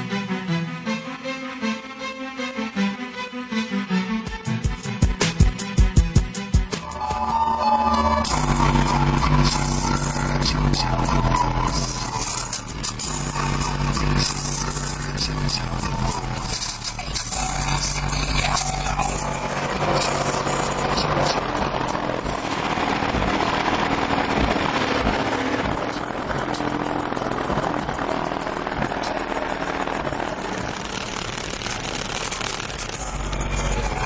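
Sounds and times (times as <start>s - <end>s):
distorted subwoofer bass rumble: 8.2s - 34.0s.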